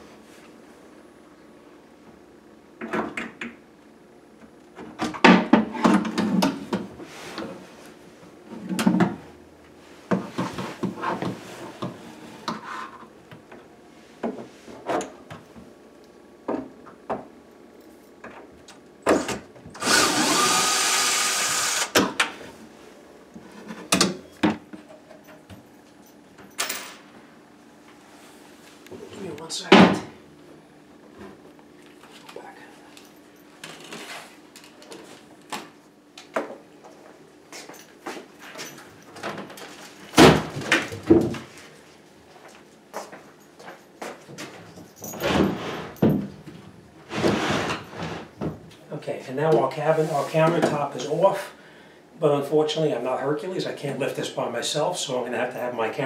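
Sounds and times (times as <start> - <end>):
cordless drill removing screws: 19.8 - 22.1.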